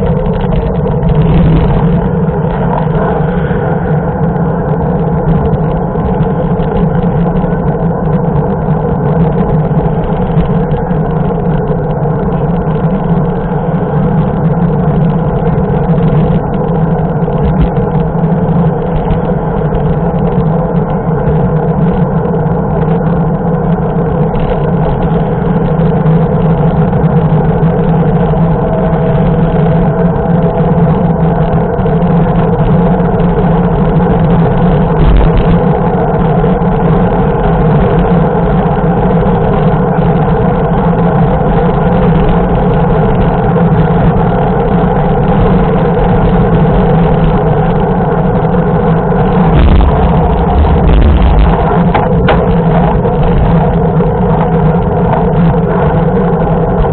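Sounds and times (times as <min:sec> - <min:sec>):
cars passing: 0:00.0 - 0:07.0
bike tyre hum on asphalt: 0:00.0 - 0:56.9
wind rush: 0:00.0 - 0:56.9.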